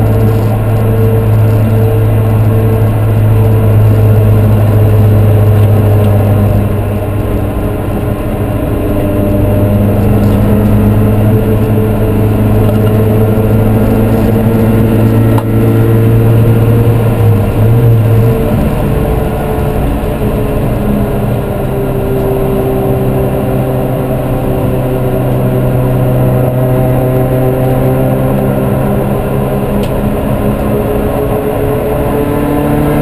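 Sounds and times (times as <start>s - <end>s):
race car engine running hard: 0.0s - 33.0s.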